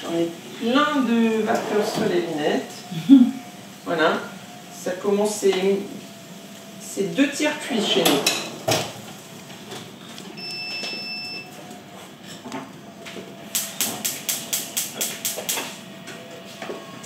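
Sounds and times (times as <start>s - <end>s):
electronic beep: 10.4s - 11.5s.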